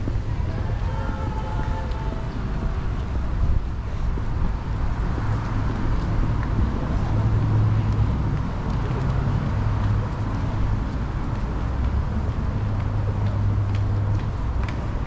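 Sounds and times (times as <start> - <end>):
road traffic hum: 0.0 - 15.0.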